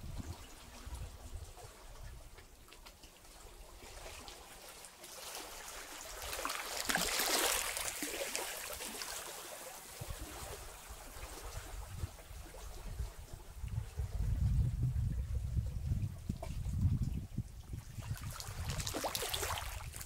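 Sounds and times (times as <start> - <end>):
water trickling between rocks: 0.0 - 10.8, 16.0 - 20.0
waves lapping on rocks: 3.3 - 13.0, 18.0 - 20.0.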